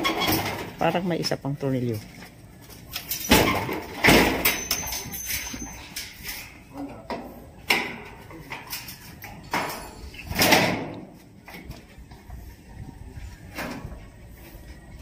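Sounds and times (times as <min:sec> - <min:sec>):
metal clanks: 0:03.0 - 0:11.0.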